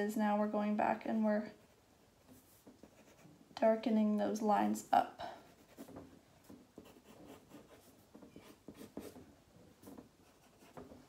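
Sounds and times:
pencil scratching on paper: 2.4s - 3.3s, 5.5s - 9.2s, 9.8s - 11.0s.

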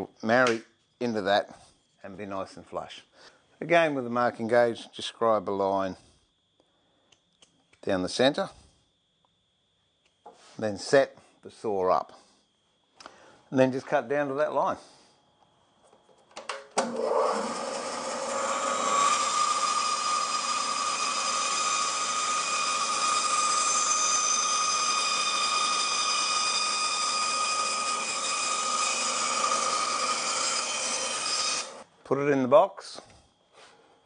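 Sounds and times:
bandsaw cutting wood: 16.8s - 31.8s
bandsaw whining: 16.8s - 31.8s.

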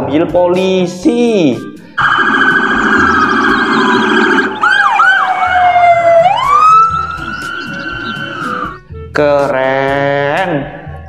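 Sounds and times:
police sirens wailing and yelping: 2.0s - 8.8s.

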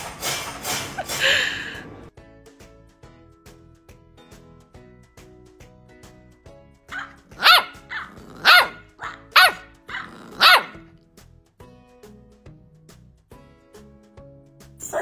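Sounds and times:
background music: 0.0s - 15.0s
puppy barking: 6.9s - 10.9s.

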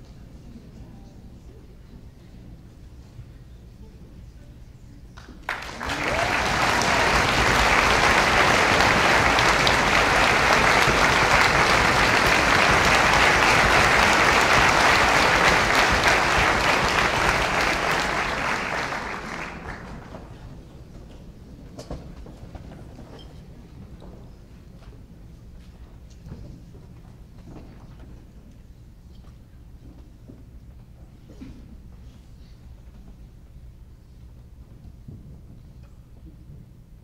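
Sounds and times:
audience applauding: 5.4s - 20.5s.

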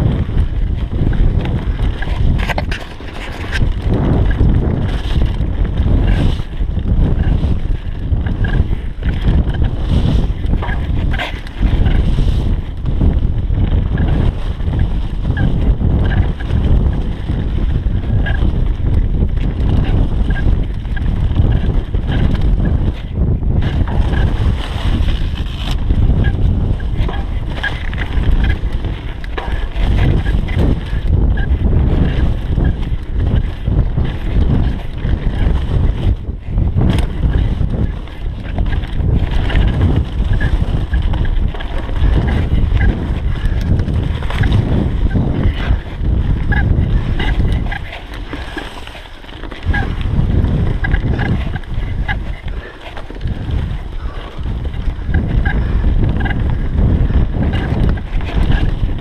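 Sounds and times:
heavy low rumble: 0.0s - 35.6s
bike rattling and knocking: 0.0s - 59.0s
wind buffeting microphone: 0.0s - 59.0s.

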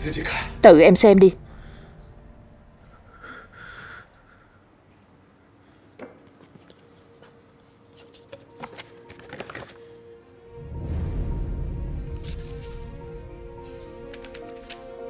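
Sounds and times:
paper crinkling and rustling: 7.9s - 9.9s, 13.6s - 15.0s
paper envelope crackle: 8.0s - 9.9s, 13.6s - 15.0s.

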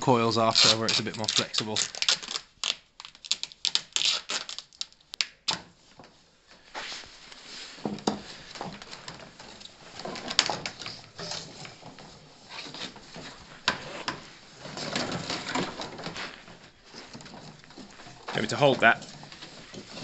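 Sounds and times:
plastic pipe scraping and rustling: 0.0s - 20.0s.

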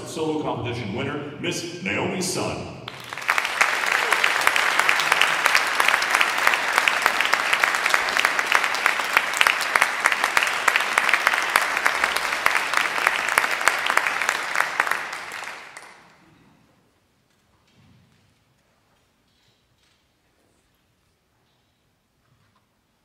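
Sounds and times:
audience applauding: 2.9s - 16.3s.

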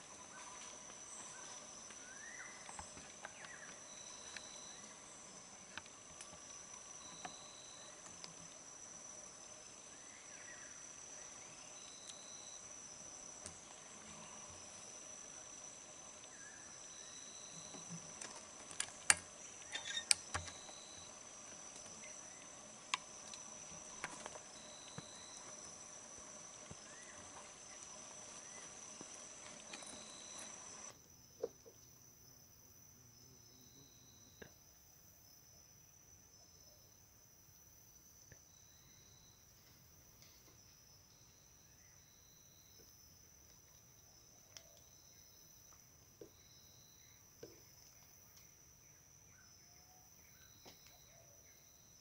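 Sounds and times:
high-pitched insect drone: 0.0s - 31.0s.

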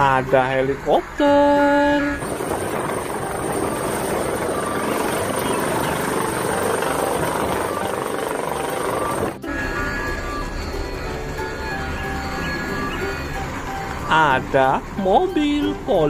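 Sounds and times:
helicopter hovering: 2.2s - 15.0s.

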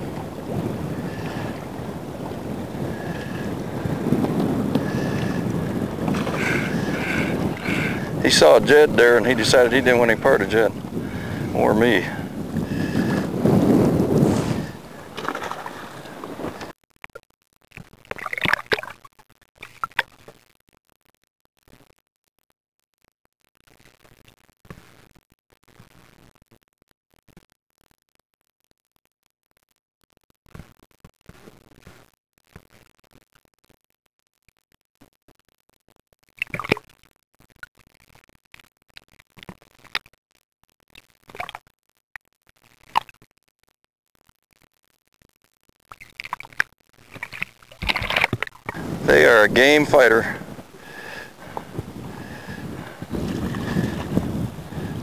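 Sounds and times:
water sloshing and gurgling: 0.0s - 16.7s, 18.1s - 19.0s, 47.2s - 49.3s, 50.3s - 55.0s
water splashing: 0.0s - 16.7s, 18.1s - 19.0s, 36.4s - 36.8s, 46.1s - 55.0s.

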